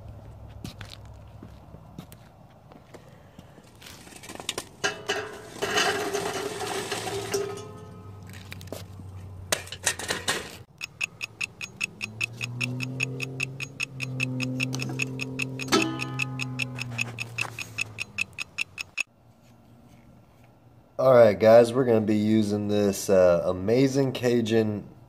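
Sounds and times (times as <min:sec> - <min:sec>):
fast ticking beat: 0:10.7 - 0:19.1
low held tone: 0:10.8 - 0:19.0.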